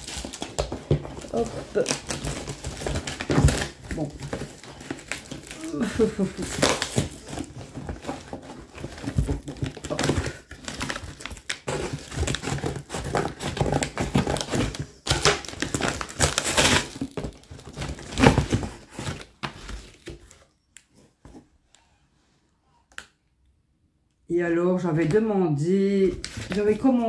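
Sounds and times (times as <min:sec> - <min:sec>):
cardboard and paper tearing: 0:00.0 - 0:20.0.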